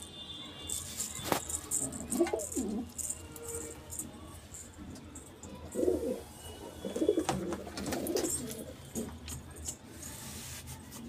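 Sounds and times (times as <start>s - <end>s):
pigeons cooing: 1.8s - 3.0s, 5.7s - 9.2s.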